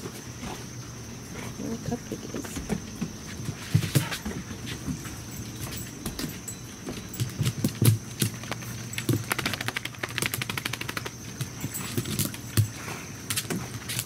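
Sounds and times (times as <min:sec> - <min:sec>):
dog claws clicking: 0:07.2 - 0:12.7.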